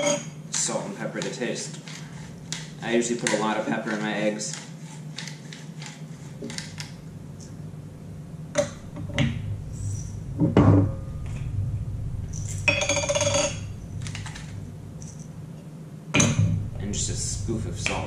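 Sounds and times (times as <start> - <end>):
grinders clinking and knocking: 0.0 - 0.7.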